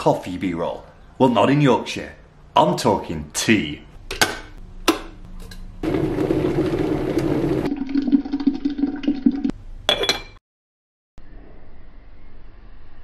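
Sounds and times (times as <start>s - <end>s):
water pouring into teapot: 5.9s - 9.5s
teapot lid clink: 9.9s - 10.4s.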